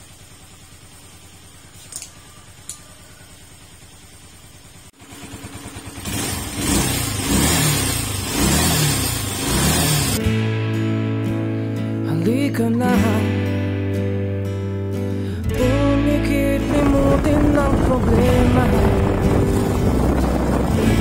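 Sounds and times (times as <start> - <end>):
motorcycle engine: 0.0 - 10.4, 15.5 - 21.0
music: 10.2 - 21.0.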